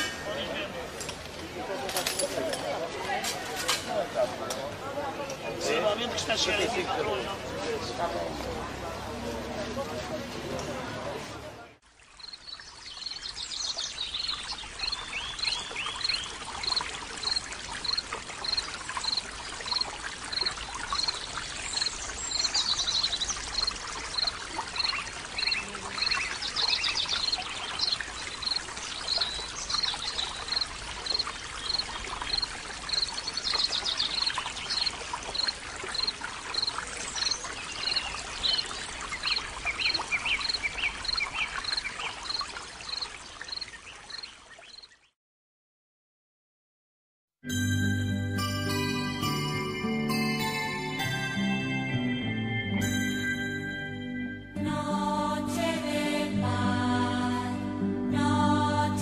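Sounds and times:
fountain water splashing: 0.0 - 44.8, 47.9 - 54.0
birdsong: 12.1 - 45.1.

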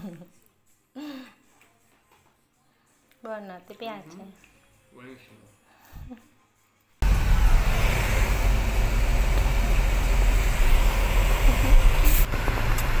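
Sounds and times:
car road and wind noise: 7.0 - 13.0.

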